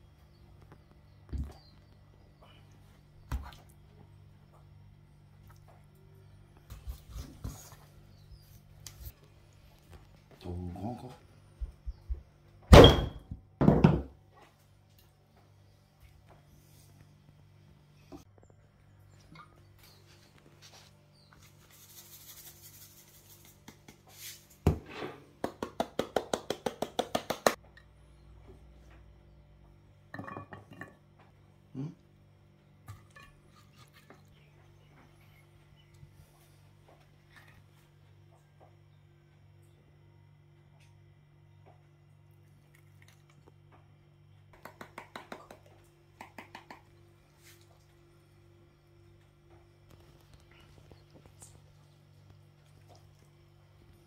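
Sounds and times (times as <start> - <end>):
container knocking on table: 12.9 - 14.1.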